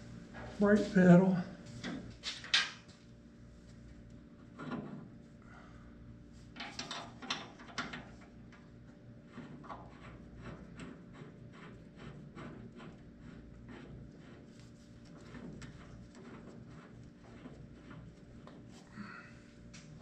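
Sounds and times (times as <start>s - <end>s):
low background hum: 0.0s - 20.0s
metal parts clicking and rattling: 6.6s - 8.2s.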